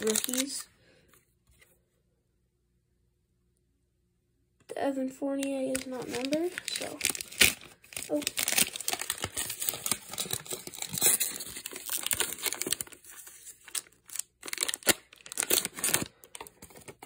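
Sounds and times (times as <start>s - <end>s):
plastic wrapper crinkling and tearing: 0.0s - 0.7s, 5.3s - 17.0s.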